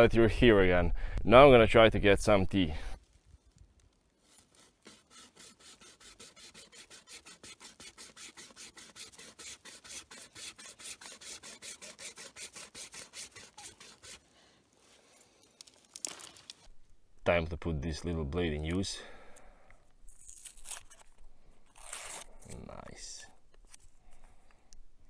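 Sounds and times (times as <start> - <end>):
rasping strokes on wooden stem: 4.2 - 14.3.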